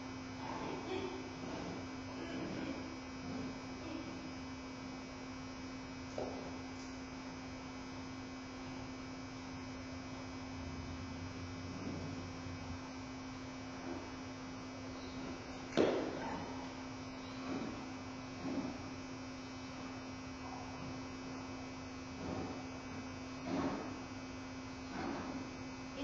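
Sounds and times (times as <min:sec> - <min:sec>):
electrical hum: 0:00.0 - 0:26.0.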